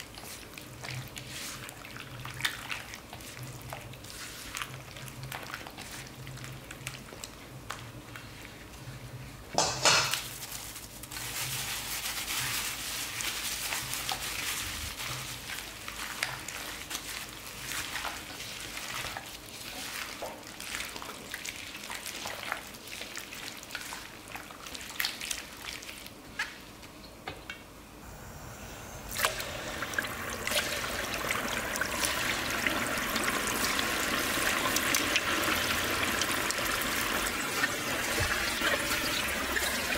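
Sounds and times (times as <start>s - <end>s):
hand squelching food in batter: 0.0s - 8.7s, 10.7s - 26.6s
chicken sizzling in hot oil: 29.2s - 39.9s.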